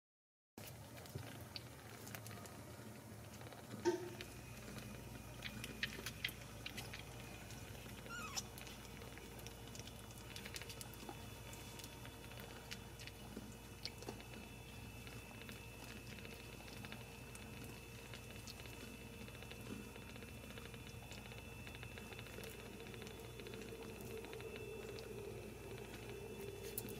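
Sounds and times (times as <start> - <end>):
kittens suckling clicks and smacks: 0.6 - 26.9
kitten squeaking: 8.0 - 8.5.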